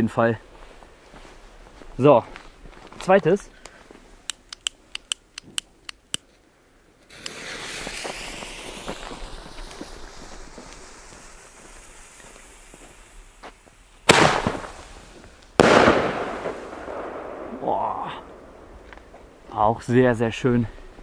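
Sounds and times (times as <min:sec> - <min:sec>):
sharp clicks of lighting: 0:03.6 - 0:06.3
firework fuse fizzing hiss: 0:07.0 - 0:19.4
firework bangs: 0:07.1 - 0:19.4.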